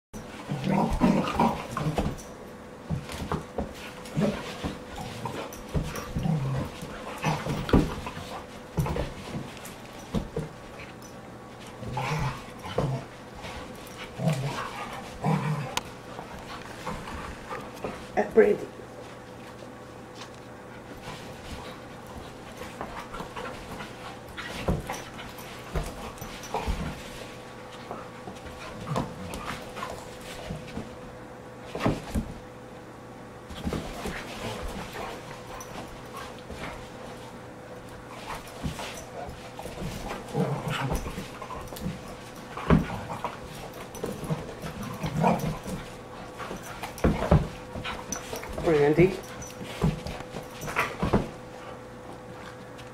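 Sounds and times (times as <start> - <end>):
dogs growling and grunting: 0.3 - 2.2, 4.0 - 9.1, 11.8 - 18.2, 22.8 - 30.7, 38.0 - 49.6
bodies bumping on carpet: 2.8 - 11.0, 19.0 - 32.4, 33.4 - 52.3.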